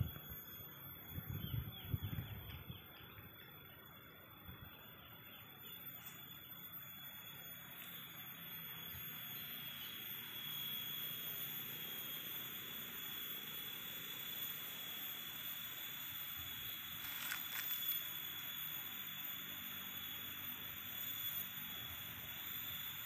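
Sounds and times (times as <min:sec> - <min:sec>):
insect chorus: 0:00.0 - 0:23.0.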